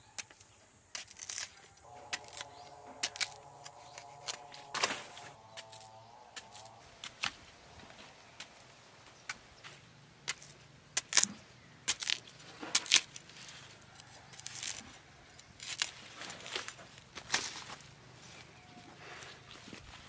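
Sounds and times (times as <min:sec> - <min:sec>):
machete chopping banana stalk: 0:10.3 - 0:13.2.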